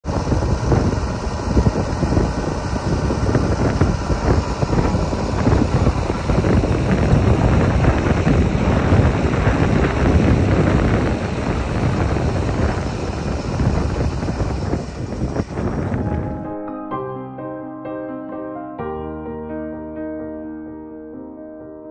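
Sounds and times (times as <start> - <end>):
tractor diesel engine running: 0.0 - 16.5
wind buffeting microphone: 0.0 - 16.6.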